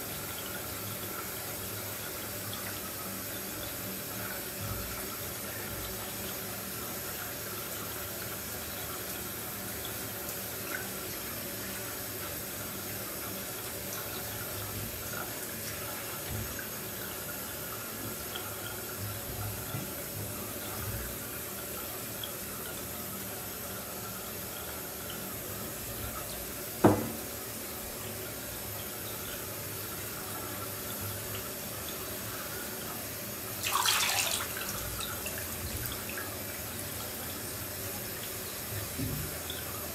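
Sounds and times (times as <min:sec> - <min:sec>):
sharp knock: 0:26.8 - 0:27.2
bathwater lapping and sloshing: 0:33.0 - 0:37.2.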